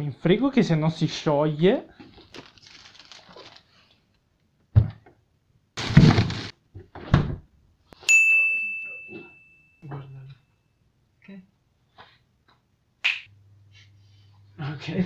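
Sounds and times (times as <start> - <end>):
rustling scrape: 5.8 - 6.5
sharp ringing clink: 8.1 - 9.9.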